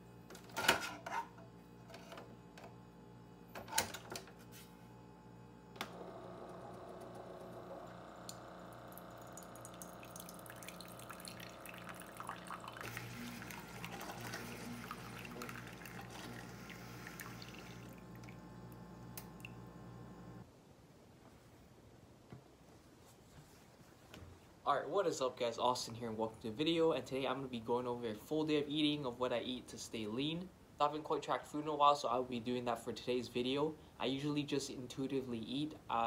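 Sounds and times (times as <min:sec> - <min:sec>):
coffee maker pulsing hum: 0:04.9 - 0:20.4
coffee streaming into a mug: 0:07.4 - 0:19.6.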